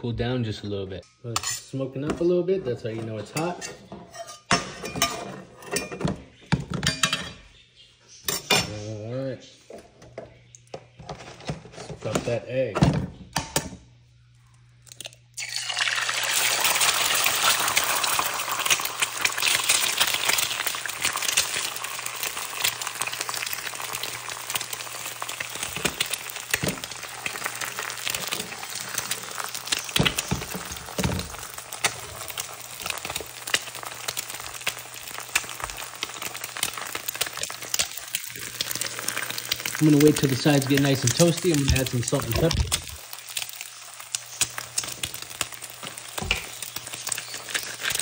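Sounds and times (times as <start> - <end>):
egg sizzling in a pan: 15.4 - 48.0.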